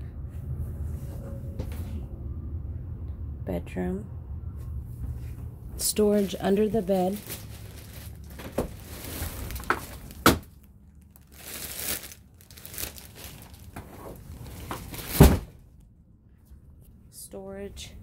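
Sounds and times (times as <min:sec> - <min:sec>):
rustling: 0:05.0 - 0:15.6.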